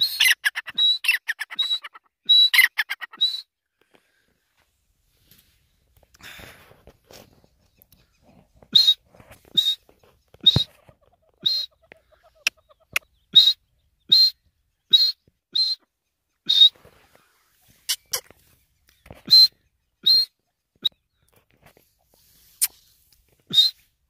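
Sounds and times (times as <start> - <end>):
partridge calling: 0.0 - 3.4, 7.5 - 21.4, 22.4 - 23.9.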